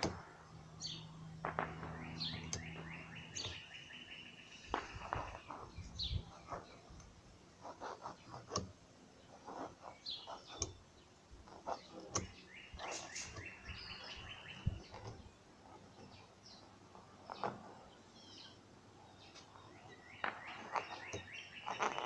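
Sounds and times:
birds chirping: 0:00.0 - 0:22.0
hand tapping and scratching paper: 0:04.7 - 0:10.8, 0:11.4 - 0:18.0, 0:20.2 - 0:22.0.

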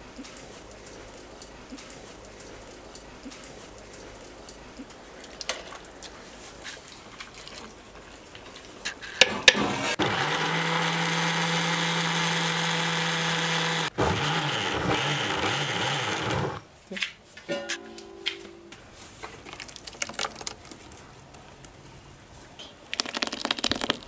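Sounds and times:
mixer grinder motor running: 0:09.7 - 0:16.6.

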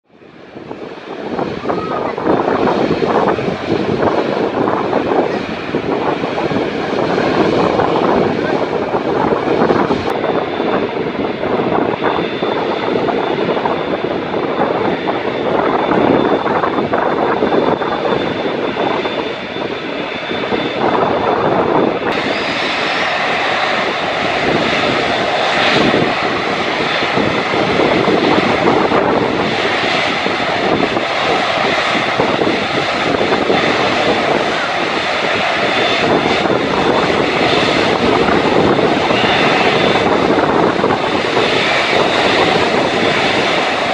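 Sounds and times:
jet engines running with high whine: 0:00.0 - 0:43.9.

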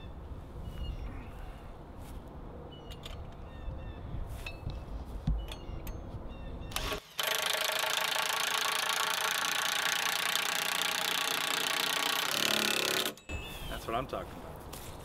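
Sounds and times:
impact driver running: 0:06.7 - 0:13.2.

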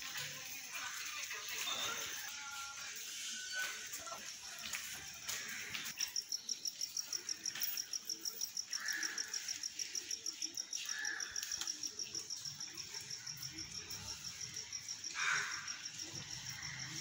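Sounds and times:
cricket chirping: 0:03.6 - 0:17.0.

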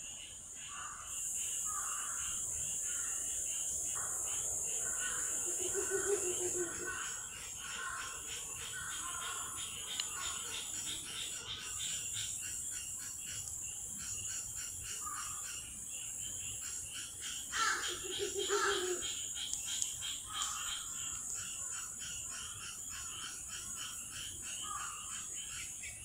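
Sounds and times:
chorus of frogs calling: 0:00.6 - 0:26.0
low pulsing frog call: 0:04.0 - 0:15.6, 0:16.6 - 0:25.7.

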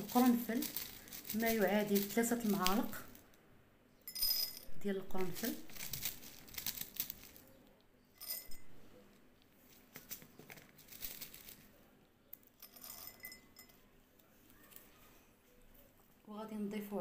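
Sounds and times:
cloves rattling into glass jar: 0:00.0 - 0:03.0, 0:04.1 - 0:07.4, 0:08.2 - 0:08.7, 0:12.6 - 0:13.8.

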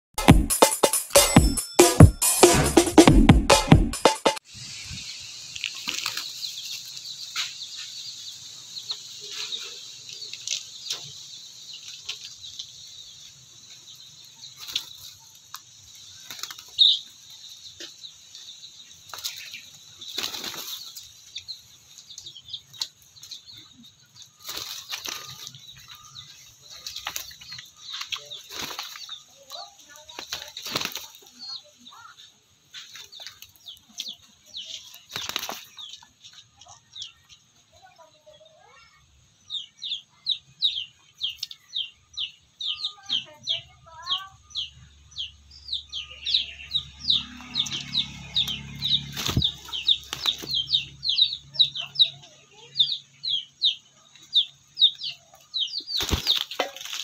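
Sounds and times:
chickens flapping wings: 0:05.6 - 0:07.1, 0:14.5 - 0:17.3, 0:19.0 - 0:21.8, 0:24.3 - 0:31.6, 0:32.8 - 0:36.2, 0:48.0 - 0:51.0, 0:55.8 - 0:57.0.

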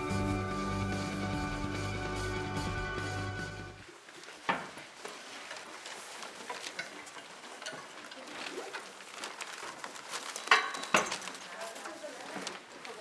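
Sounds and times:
rustling: 0:03.8 - 0:13.0.

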